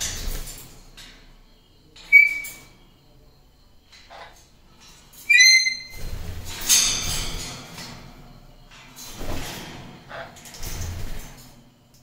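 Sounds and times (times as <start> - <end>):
parrot falling chirp: 2.1 - 2.6, 5.3 - 6.0
parrot whistled calls: 2.1 - 2.6, 5.3 - 5.9
parrot wing flutter: 5.9 - 8.1, 9.0 - 11.6.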